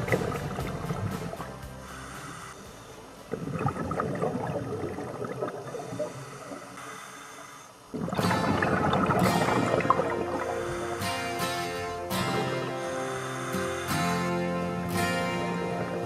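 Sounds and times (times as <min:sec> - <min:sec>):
background music: 0:00.0 - 0:05.2, 0:08.2 - 0:16.0
diver regulator breathing: 0:01.8 - 0:03.2, 0:05.6 - 0:08.4, 0:09.4 - 0:16.0
bubbles gurgling underwater: 0:03.3 - 0:06.2, 0:07.9 - 0:10.6.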